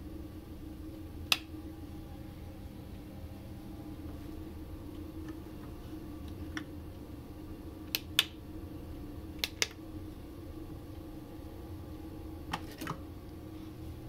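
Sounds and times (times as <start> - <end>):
steady low hum: 0.0 - 14.0
switches and buttons clicking: 9.4 - 9.8.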